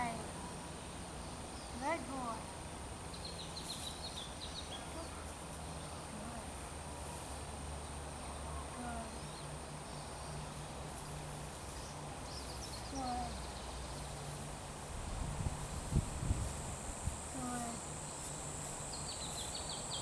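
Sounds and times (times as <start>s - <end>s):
high insect drone: 0.0s - 20.0s
bird chirping: 3.1s - 6.2s, 11.8s - 14.3s, 18.0s - 20.0s.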